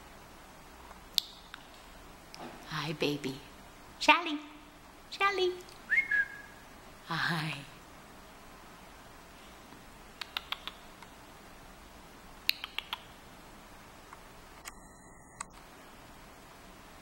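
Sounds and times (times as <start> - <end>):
faint room hiss: 0.0 - 17.0
sharp clicks: 10.2 - 11.1, 12.5 - 13.1.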